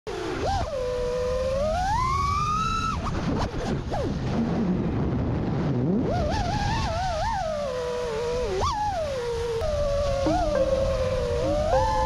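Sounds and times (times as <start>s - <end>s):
drone motors whining: 0.1s - 3.0s, 6.2s - 12.0s.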